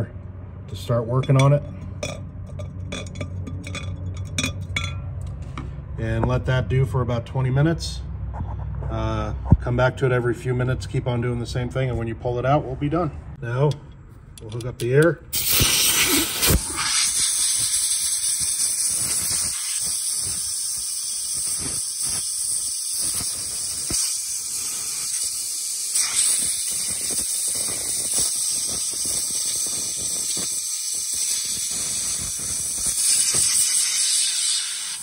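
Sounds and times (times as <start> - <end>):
compressed air blow gun hissing: 15.3 - 35.0.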